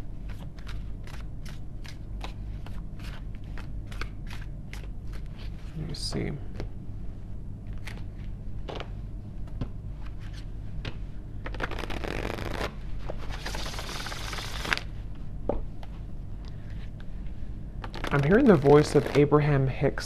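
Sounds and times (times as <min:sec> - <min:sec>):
cards being shuffled: 0:00.2 - 0:06.0, 0:07.7 - 0:08.9, 0:09.5 - 0:14.9, 0:17.8 - 0:19.4.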